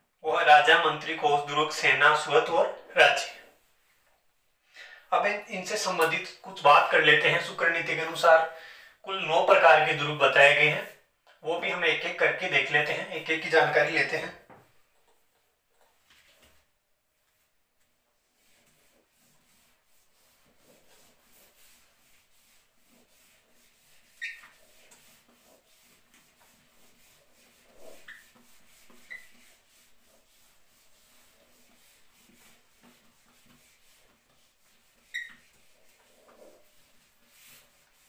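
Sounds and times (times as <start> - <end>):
eraser rubbing on whiteboard: 18.2 - 38.0
eraser squeaks: 24.0 - 24.7, 27.8 - 29.6, 35.0 - 35.6.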